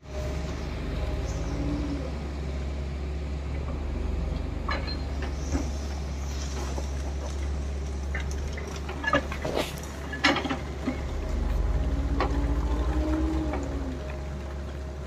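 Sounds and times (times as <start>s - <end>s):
diesel engines droning: 0.0s - 15.0s
bucket scraping rock and soil: 8.2s - 11.6s.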